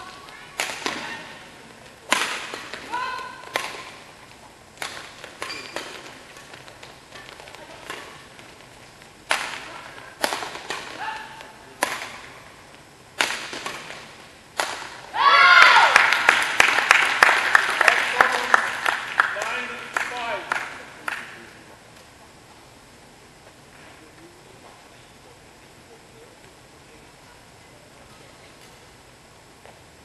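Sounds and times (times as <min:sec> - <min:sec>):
racket striking shuttlecock: 0:00.2 - 0:01.4, 0:02.0 - 0:04.1, 0:04.8 - 0:08.6, 0:09.2 - 0:12.4, 0:13.2 - 0:15.1
people clapping: 0:15.4 - 0:21.6.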